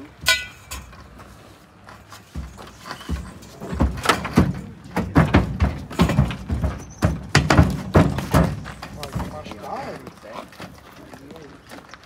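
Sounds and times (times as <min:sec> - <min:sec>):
horse hooves on trailer ramp: 0:00.0 - 0:12.0.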